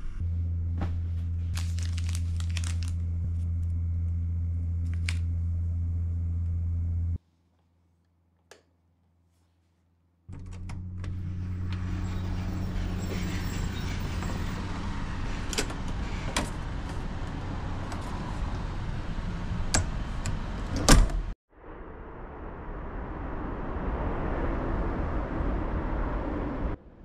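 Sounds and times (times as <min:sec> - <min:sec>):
steady low outdoor hum: 0:00.0 - 0:07.2.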